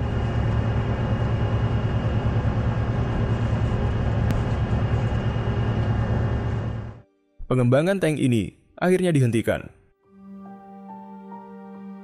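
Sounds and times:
faint high whine: 0.0s - 7.0s.

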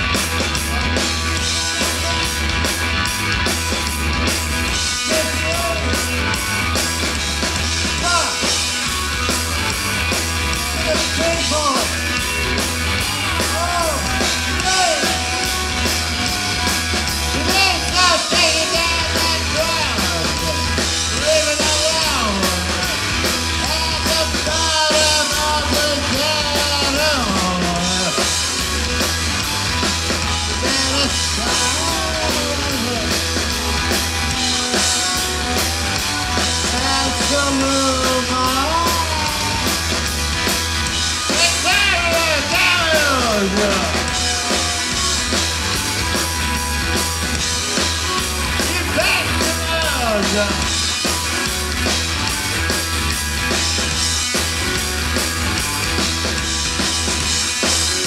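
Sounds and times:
bass guitar: 0.0s - 58.0s
drum kit: 0.0s - 58.0s
electric guitar: 0.0s - 58.0s
man singing into a microphone: 23.6s - 28.2s, 30.6s - 33.2s, 36.7s - 39.6s.

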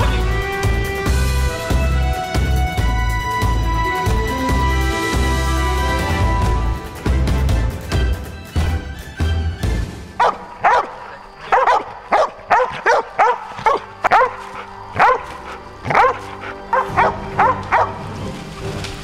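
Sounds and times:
faint music: 7.6s - 19.0s
dog barking: 10.2s - 18.0s.

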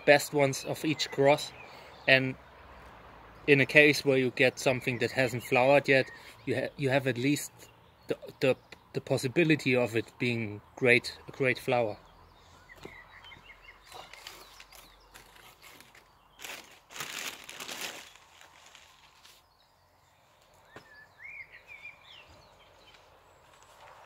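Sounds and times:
small birds chirping: 0.0s - 24.0s
paper and plastic rustling: 13.8s - 19.4s.

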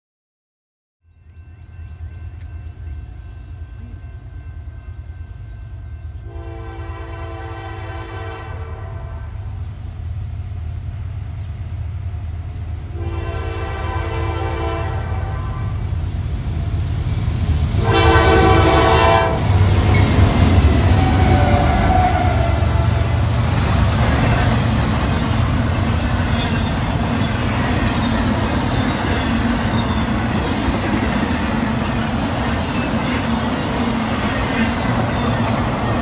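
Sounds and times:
train cars rushing past: 1.2s - 36.0s
locomotive air horn blasts: 6.2s - 9.4s, 12.9s - 15.8s, 17.8s - 19.6s, 20.8s - 23.3s.

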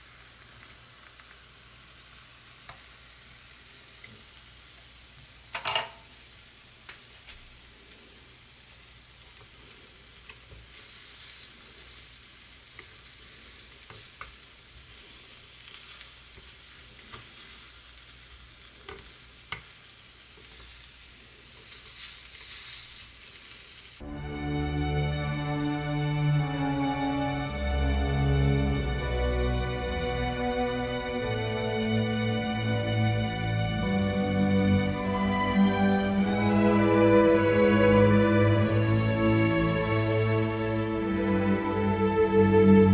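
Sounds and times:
food sizzling on hot plates: 0.0s - 42.4s
chopsticks tapping and scraping: 13.8s - 14.4s, 16.4s - 17.6s, 18.8s - 19.7s.

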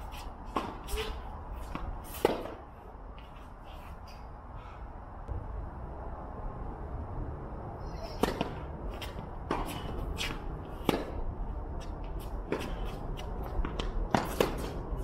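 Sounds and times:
tennis ball being hit: 0.1s - 2.6s, 8.2s - 11.2s, 12.4s - 14.8s.

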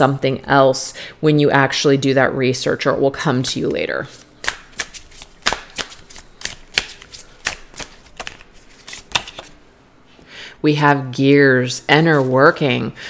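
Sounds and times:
cards being shuffled by hand: 4.1s - 9.6s.

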